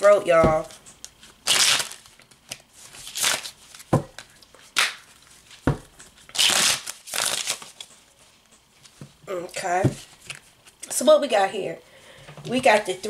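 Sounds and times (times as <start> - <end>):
cards shuffled by hand: 6.4 - 8.0.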